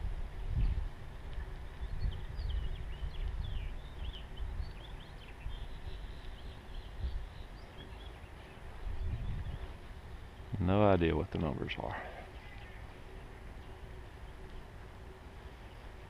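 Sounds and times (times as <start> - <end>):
wind noise on microphone: 0.0 - 10.7
bicycle rolling on sand: 0.0 - 16.0
small birds chirping: 0.2 - 16.0.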